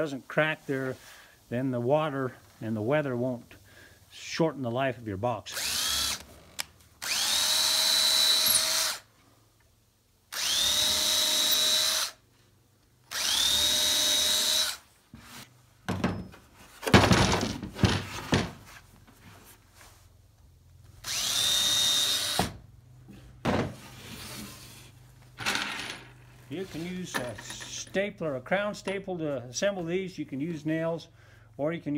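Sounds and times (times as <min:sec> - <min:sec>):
power drill whining: 0:05.5 - 0:09.1, 0:10.3 - 0:12.2, 0:13.1 - 0:14.8, 0:21.0 - 0:22.6
knocks and clatter: 0:15.9 - 0:18.6.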